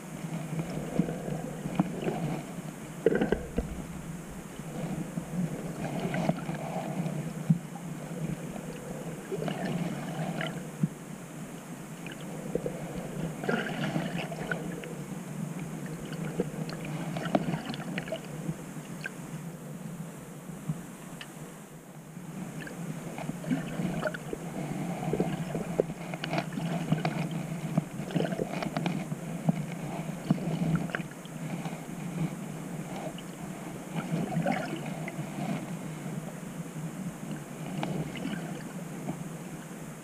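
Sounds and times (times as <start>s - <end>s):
underwater water rush: 0.0s - 18.4s, 33.9s - 36.2s, 37.2s - 39.2s
underwater clicks and pops: 3.0s - 4.1s.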